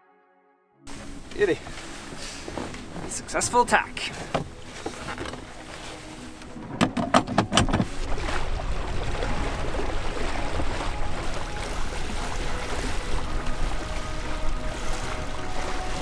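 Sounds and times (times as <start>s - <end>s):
wind and water rushing: 0.9s - 16.0s
winch handle clicking: 6.7s - 7.9s.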